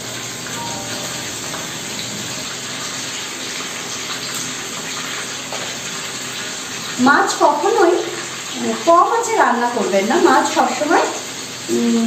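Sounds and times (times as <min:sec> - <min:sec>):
fish frying in oil: 0:00.0 - 0:12.0.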